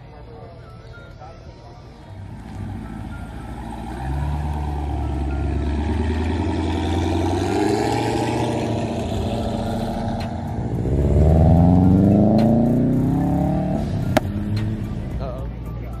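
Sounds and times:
car engine pulling away: 2.0 - 15.4.

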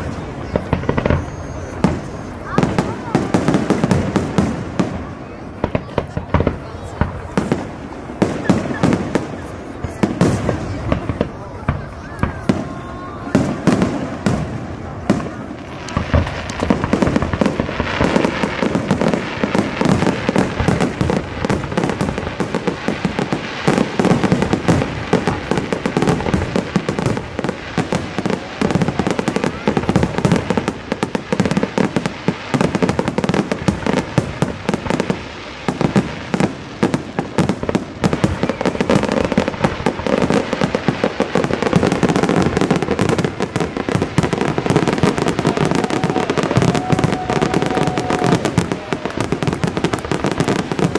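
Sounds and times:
fireworks bursting and crackling: 0.0 - 50.9.

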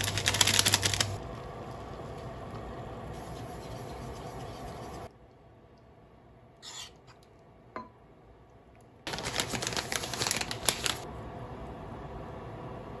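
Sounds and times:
plastic bag crinkling: 9.1 - 11.0.

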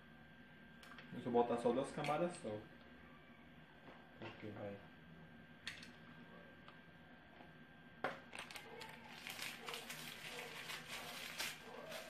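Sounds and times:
crackling and rustling: 8.3 - 12.0.

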